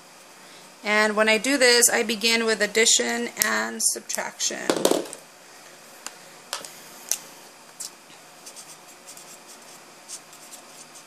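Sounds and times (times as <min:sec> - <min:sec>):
marker scratching on paper: 0:08.4 - 0:11.0.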